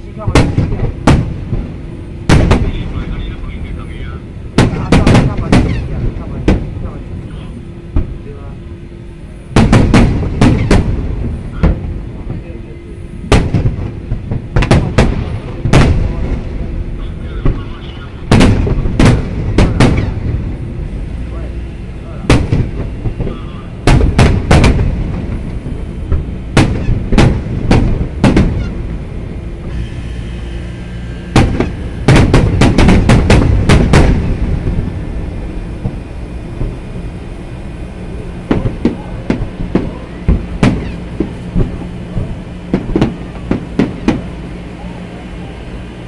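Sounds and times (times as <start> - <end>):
firework shells bursting: 0.2 - 3.1, 4.5 - 6.7, 9.5 - 11.9, 13.2 - 16.4, 18.2 - 20.5, 22.2 - 30.5, 31.2 - 37.0, 37.8 - 44.4.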